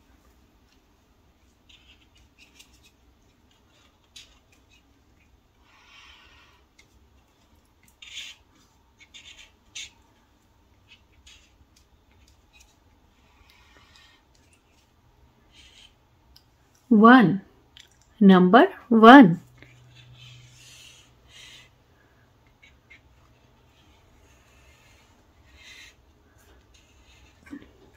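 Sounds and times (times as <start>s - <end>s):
felt marker stroking on paper: 19.6s - 21.7s, 22.6s - 26.0s, 26.6s - 27.4s.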